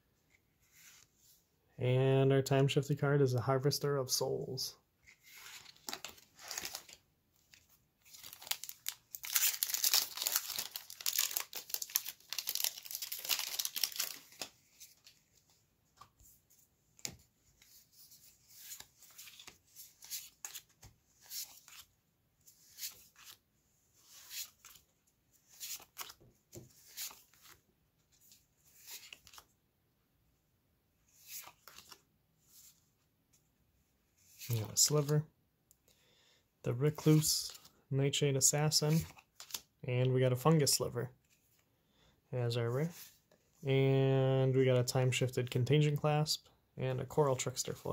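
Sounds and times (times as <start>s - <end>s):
foil wrapper tearing and crinkling: 8.2s - 14.3s.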